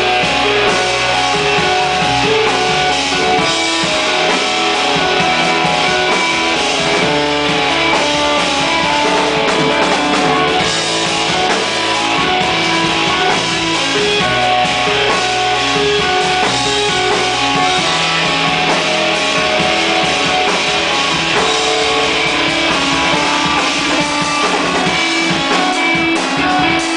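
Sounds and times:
drum kit: 0.0 - 26.9
electric organ and keyboards: 0.0 - 26.9.

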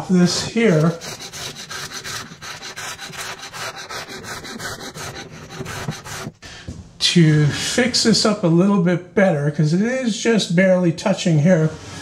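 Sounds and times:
hand tool rubbing on wood: 0.0 - 6.4.

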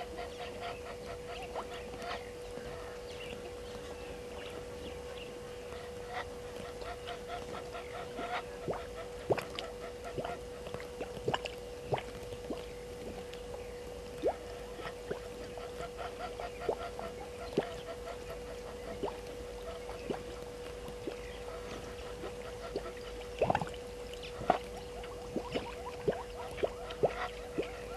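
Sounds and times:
steady hum: 0.0 - 27.9
sharp drip-like plinks: 8.7 - 15.9, 22.2 - 27.8.

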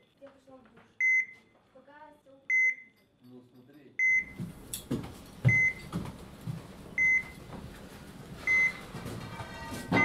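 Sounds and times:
heart monitor beeping: 1.0 - 1.5, 4.0 - 4.6, 5.4 - 6.1, 6.9 - 7.6, 8.4 - 9.0
faint footsteps: 4.3 - 10.0.

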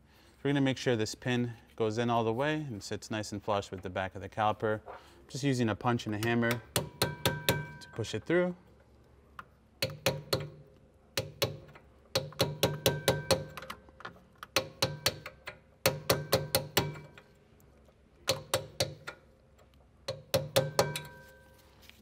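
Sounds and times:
hammer tapping steel punch: 6.1 - 7.9, 9.8 - 13.8, 14.4 - 17.3, 18.2 - 19.2, 20.0 - 21.3.

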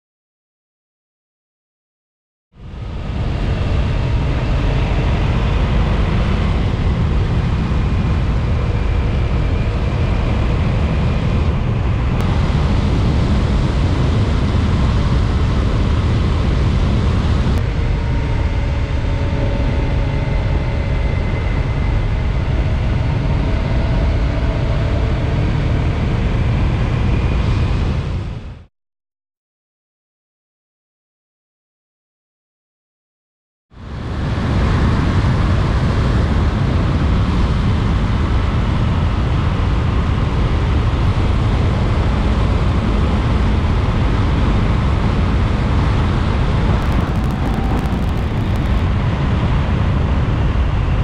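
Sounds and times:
wind rumble on microphone: 2.6 - 28.7, 33.8 - 51.0
motorcycle engine running: 46.5 - 48.9.

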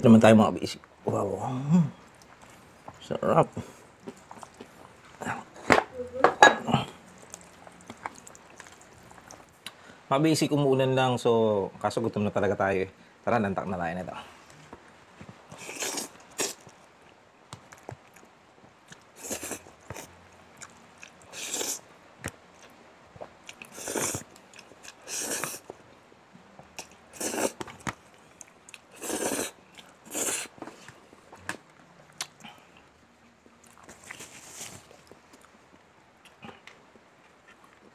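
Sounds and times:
wet chewing: 3.8 - 5.3, 6.9 - 9.8, 26.6 - 37.9
man slurping noodles: 15.6 - 16.6, 21.3 - 21.8, 23.7 - 24.3, 24.9 - 25.6, 27.1 - 27.6, 28.9 - 30.5.

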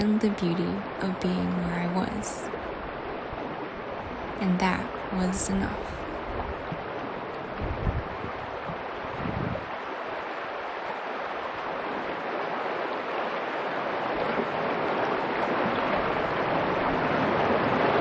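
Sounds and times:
river rushing over stones: 3.0 - 18.0.

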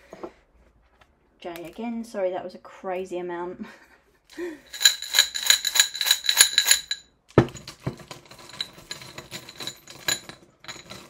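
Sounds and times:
small metal objects jingling: 4.7 - 11.0
small objects clattering on table: 4.7 - 11.0.

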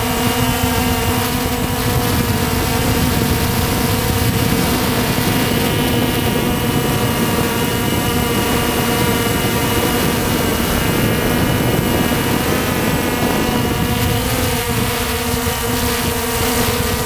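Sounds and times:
drone motors whining: 0.0 - 17.0
wind rushing over microphone: 0.0 - 17.0.

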